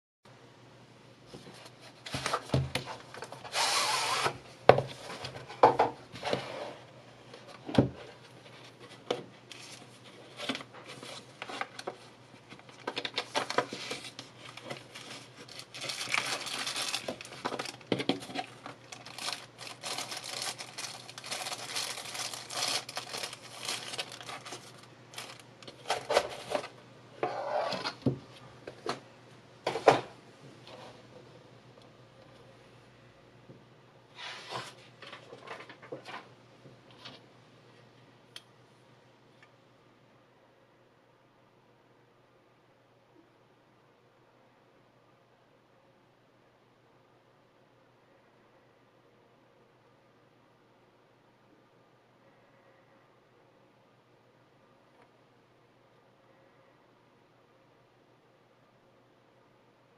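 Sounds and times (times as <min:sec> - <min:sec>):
plastic wrap crinkling: 0:09.5 - 0:26.7.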